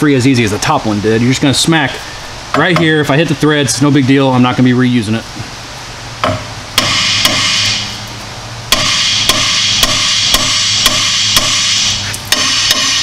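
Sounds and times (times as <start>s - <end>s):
hammer blows on metal: 6.2s - 7.9s, 8.7s - 13.0s.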